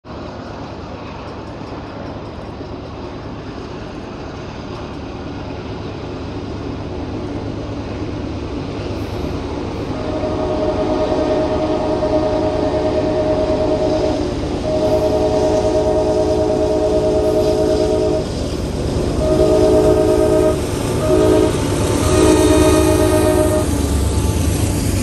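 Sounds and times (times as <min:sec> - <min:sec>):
diesel locomotives rumbling: 0:00.0 - 0:25.0
locomotive air horn: 0:09.8 - 0:24.5.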